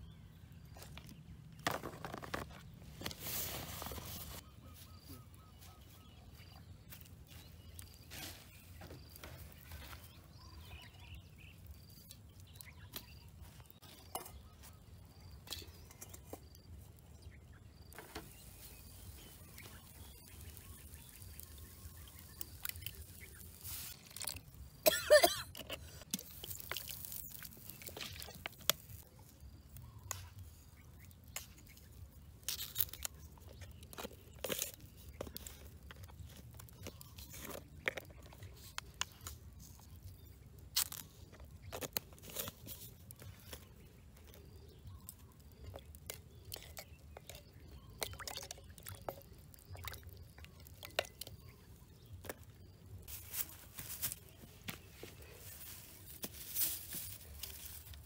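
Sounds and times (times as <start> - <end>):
faint high bird chirps: 3.9 - 24.0.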